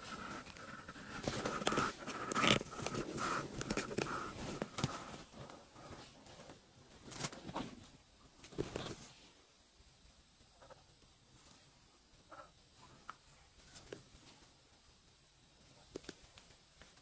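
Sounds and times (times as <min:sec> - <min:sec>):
scuffs and knocks of movement: 0:00.0 - 0:09.3
rustling of bedding: 0:00.0 - 0:09.4.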